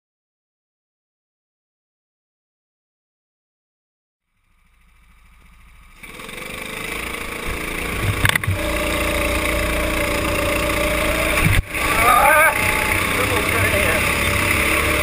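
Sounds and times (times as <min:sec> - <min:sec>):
go-kart engine accelerating: 0:04.3 - 0:15.0.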